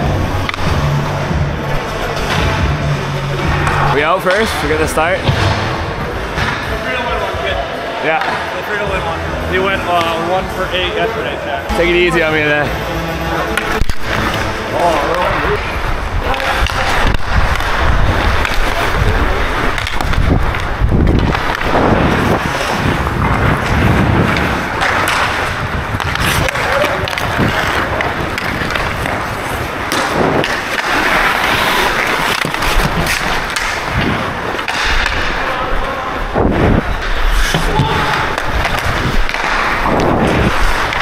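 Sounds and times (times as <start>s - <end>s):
hockey sticks knocking puck: 0.0s - 1.0s, 13.5s - 36.0s, 36.7s - 41.0s
skate blades scraping on ice: 13.5s - 35.5s, 36.5s - 41.0s.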